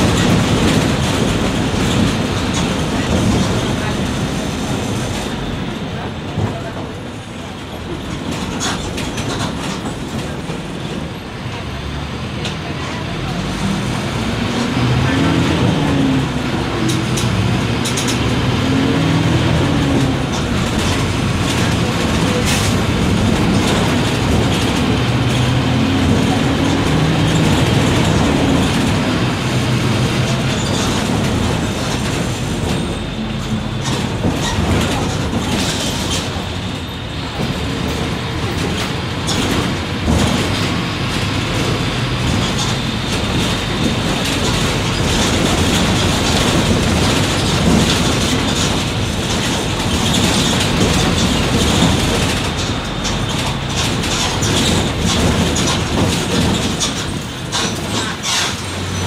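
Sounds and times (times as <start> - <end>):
bus body rattling: 0.0 - 59.0
bus diesel engine running: 0.0 - 59.0.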